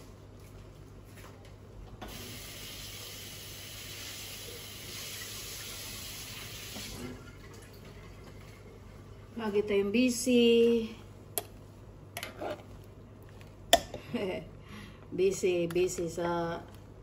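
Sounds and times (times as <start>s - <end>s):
water running from tap: 2.1s - 8.3s.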